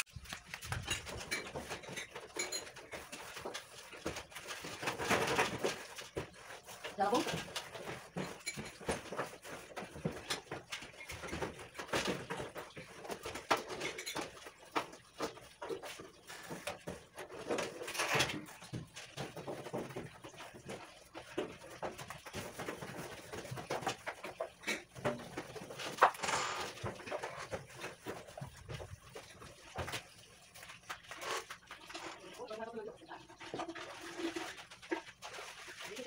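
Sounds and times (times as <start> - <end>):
metal oven parts knocking and scraping: 0.6 - 20.9.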